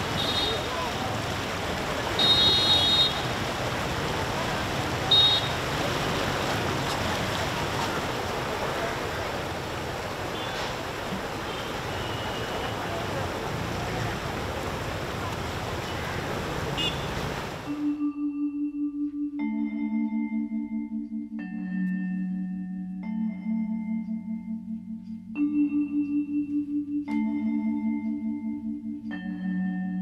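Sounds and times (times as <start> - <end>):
river rushing: 0.0 - 17.7.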